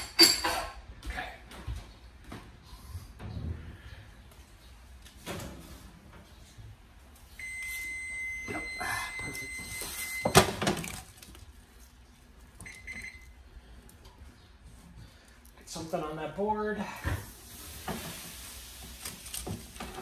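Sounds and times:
oven beeper beeping: 0:07.4 - 0:10.6, 0:12.6 - 0:13.4.

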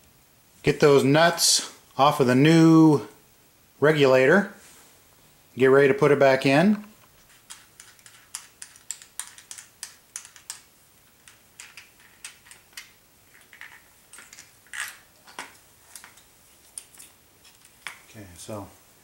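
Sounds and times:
metal tools clicking and tapping: 0:07.5 - 0:16.2.

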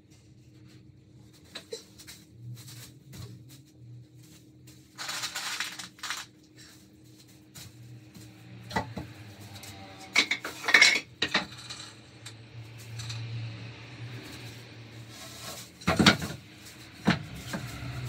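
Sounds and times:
small metal pieces clinking: 0:05.0 - 0:06.3.

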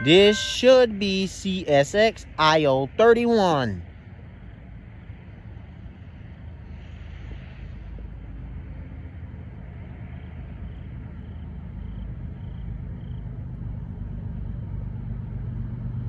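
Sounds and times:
crossing bell dinging: 0:00.0 - 0:02.8
freight train rumble: 0:00.0 - 0:16.0.

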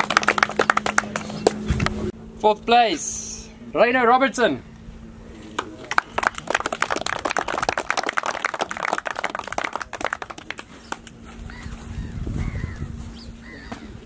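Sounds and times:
crowd applauding: 0:00.0 - 0:01.6, 0:05.6 - 0:11.2.

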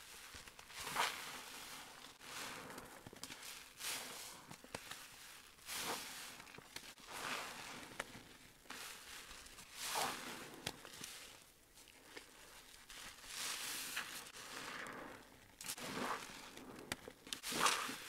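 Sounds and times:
sponge squelching in foam: 0:05.4 - 0:07.9, 0:08.7 - 0:11.2, 0:17.4 - 0:18.0.

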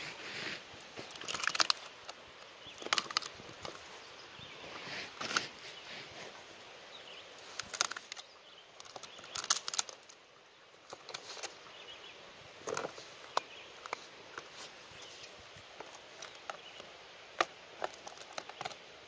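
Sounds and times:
wood crackles and scrapes: 0:00.0 - 0:02.2, 0:02.8 - 0:03.9, 0:04.6 - 0:06.5, 0:07.4 - 0:08.2, 0:08.8 - 0:10.2, 0:12.6 - 0:16.6.

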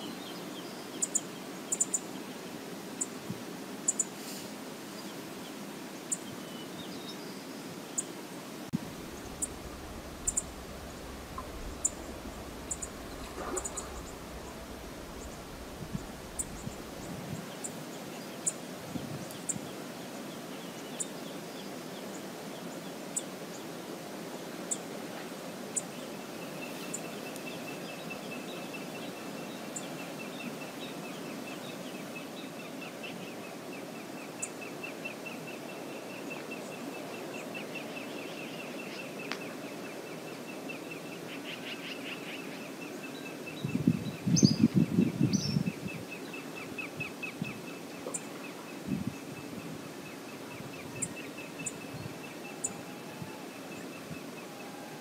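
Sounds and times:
river flowing: 0:00.0 - 0:43.6
rapid ticking trill: 0:08.8 - 0:17.1
low rumbling: 0:08.8 - 0:17.4
high bird chirps: 0:09.0 - 0:17.1.

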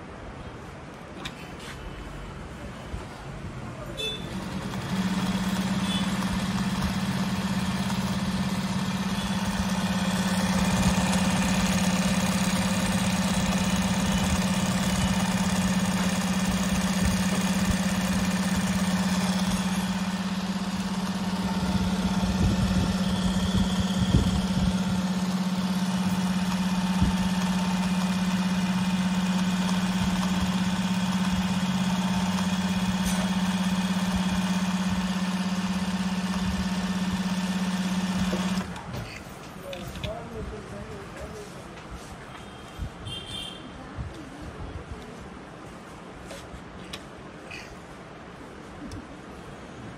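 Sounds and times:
sewing machine humming: 0:04.0 - 0:38.9.

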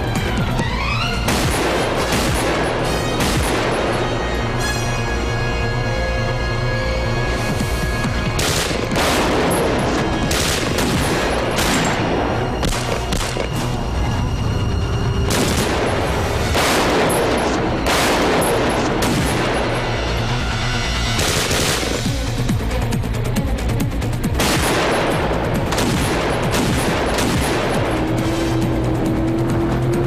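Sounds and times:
background music: 0:00.0 - 0:30.0
handgun shots: 0:12.6 - 0:13.6.

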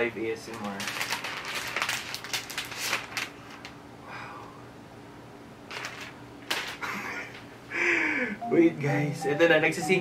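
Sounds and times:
plastic film crinkling: 0:00.4 - 0:03.8, 0:05.7 - 0:06.9.

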